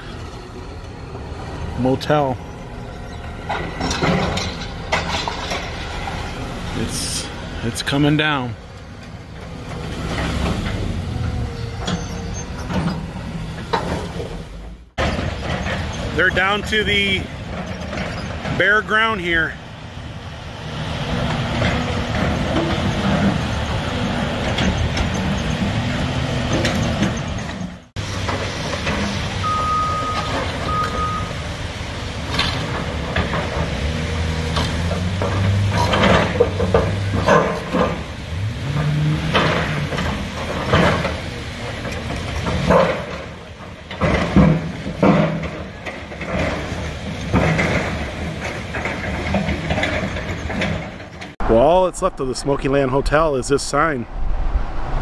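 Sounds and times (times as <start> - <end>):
diesel engines running: 0.0 - 55.0
metal clanks and knocks: 3.1 - 6.4, 11.8 - 18.6, 34.5 - 38.1, 38.7 - 51.4
metallic clanks: 3.1 - 6.4.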